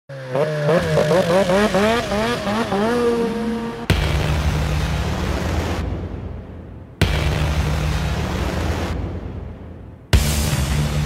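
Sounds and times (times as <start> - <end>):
snowmobile engine revving: 0.1 - 5.9
deep boom: 3.8 - 11.0.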